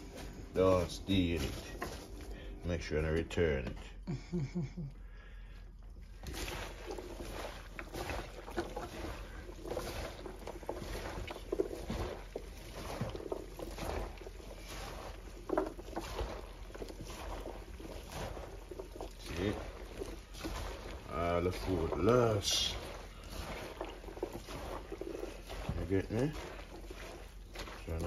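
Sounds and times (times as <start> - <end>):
chopped vegetables rustling in a pot: 0.0 - 3.6, 6.0 - 28.0
vegetables clicking against a pot: 6.2 - 28.0.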